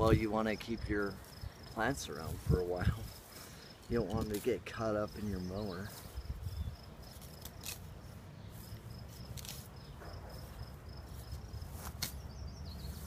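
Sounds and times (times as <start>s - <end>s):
insect chirping: 0.1s - 13.0s
sickle slicing grass: 7.1s - 12.3s.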